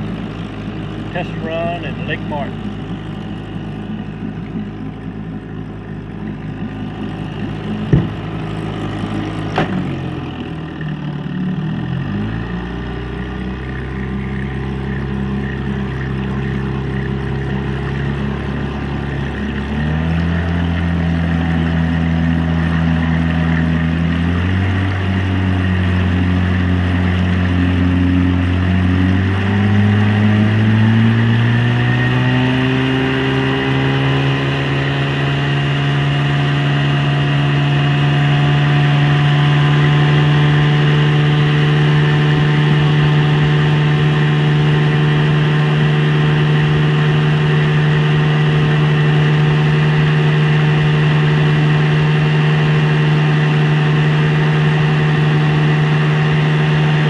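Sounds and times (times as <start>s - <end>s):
outboard motor running: 0.0s - 57.0s.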